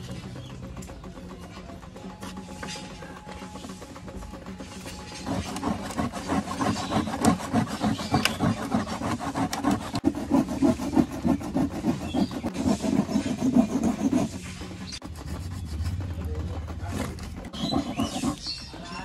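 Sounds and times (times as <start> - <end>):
hand tool scraping: 4.6 - 19.0.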